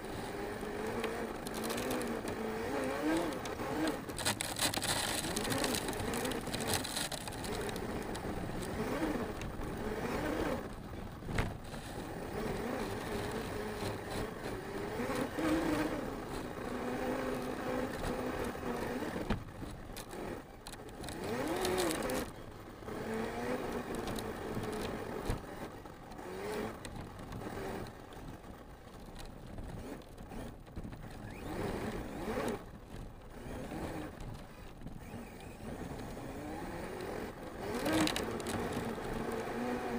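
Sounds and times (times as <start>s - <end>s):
tyres on rough dirt: 0.0s - 39.9s
electric motor whining: 33.3s - 39.9s.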